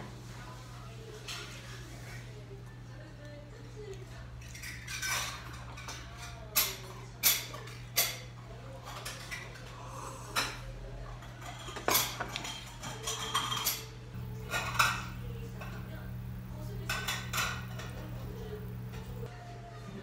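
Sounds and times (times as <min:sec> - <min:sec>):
metal utensils clinking on bowls: 0:04.4 - 0:09.7, 0:10.4 - 0:19.3.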